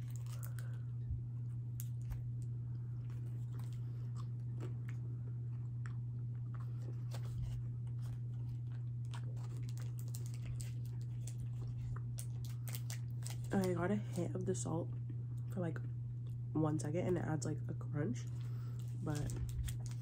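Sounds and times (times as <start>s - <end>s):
person chewing crunchy food: 0.0s - 13.7s
steady low hum: 0.0s - 20.0s.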